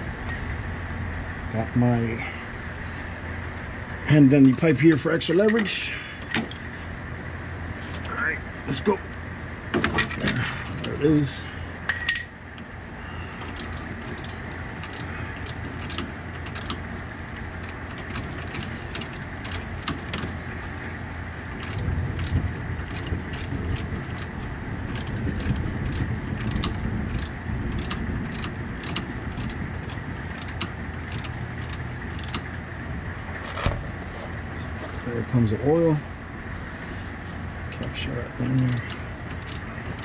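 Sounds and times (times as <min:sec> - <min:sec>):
steady low hum: 0:00.0 - 0:40.0
wrench clicking: 0:13.4 - 0:16.8, 0:17.4 - 0:20.9, 0:21.6 - 0:32.5, 0:38.7 - 0:40.0.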